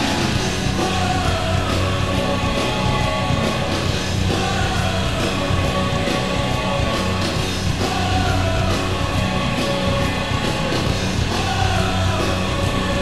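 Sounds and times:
loud rock music with singing: 0.0s - 13.0s.

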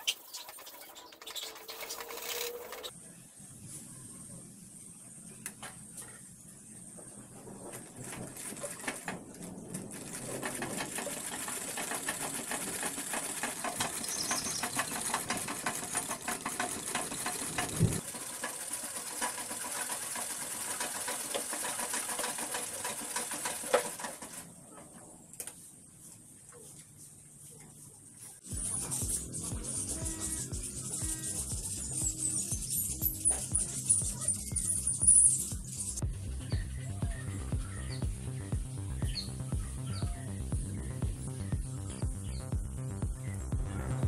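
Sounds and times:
treadle sewing machine clatter: 0.2s - 2.9s, 7.5s - 24.6s.

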